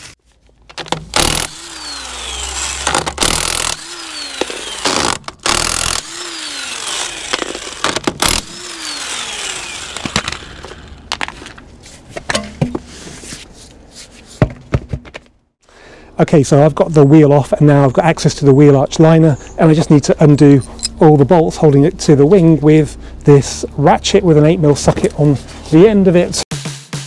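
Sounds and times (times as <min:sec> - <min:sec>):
impact wrench motor whine: 0:01.1 - 0:11.2.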